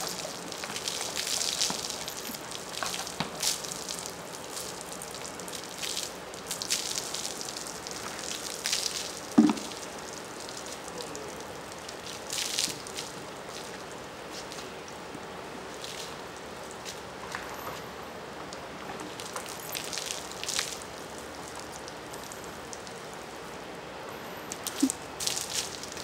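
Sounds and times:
loud thud: 9.4s - 9.7s.

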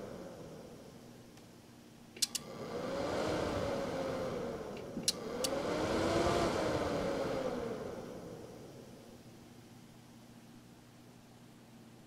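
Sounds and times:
cooling fan whining: 0.0s - 12.0s
sharp clicks: 2.2s - 2.5s.

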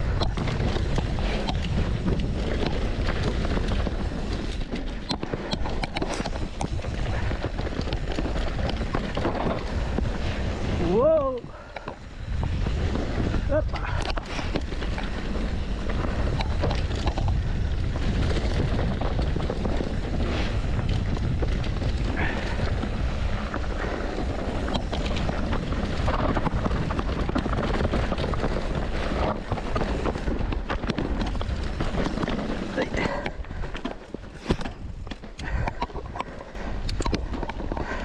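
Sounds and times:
bike knocking and rattling: 0.0s - 38.0s
bike tyre noise: 0.0s - 38.0s
wind rumble on microphone: 0.0s - 38.0s.

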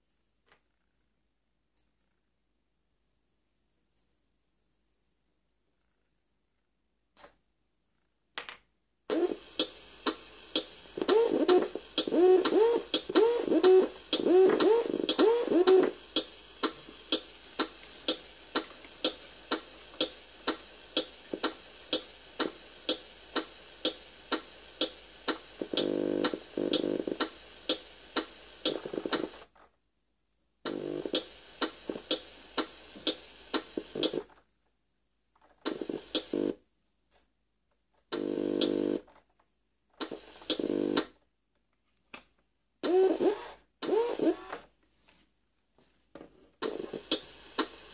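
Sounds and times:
steady electronic ticking: 9.5s - 29.2s, 30.7s - 33.3s.

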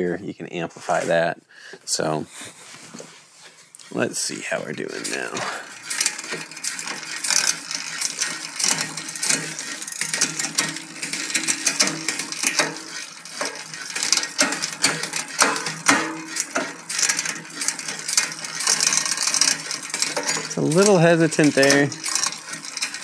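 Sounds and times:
bicycle chain whirring: 3.4s - 23.0s
derailleur shifting clicks: 5.0s - 23.0s.

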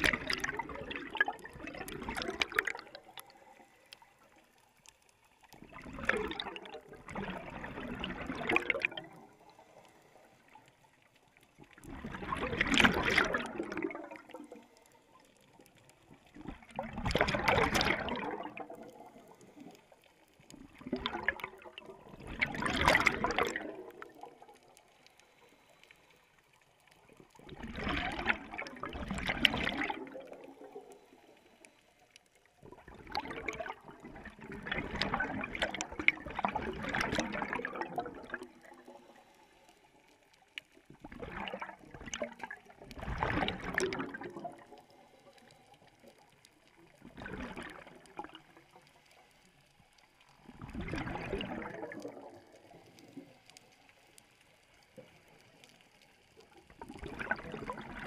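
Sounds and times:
diver exhaust bubbles: 0.0s - 3.1s, 5.6s - 9.4s, 11.8s - 14.4s, 16.5s - 19.3s, 20.8s - 24.4s, 27.5s - 30.8s, 32.7s - 38.7s, 41.1s - 44.6s, 50.6s - 52.4s, 56.9s - 58.0s.

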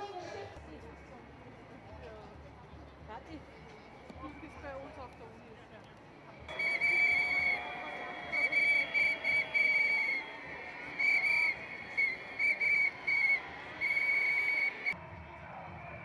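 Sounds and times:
crowd noise: 0.0s - 16.0s
pea whistle blasts: 6.5s - 15.0s.

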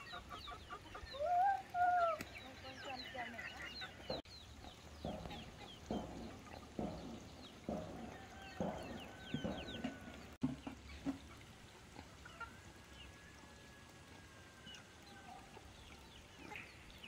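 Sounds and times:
chicks peeping: 0.0s - 11.4s
chickens clucking: 0.0s - 13.2s, 14.7s - 17.0s.

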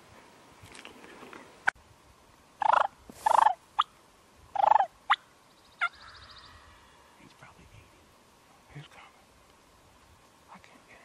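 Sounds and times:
turkey gobbling: 2.6s - 3.9s, 4.6s - 5.2s.

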